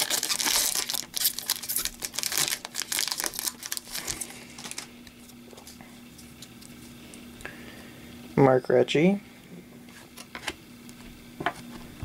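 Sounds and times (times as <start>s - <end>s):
foil wrapper crinkling and tearing: 0.0s - 7.0s.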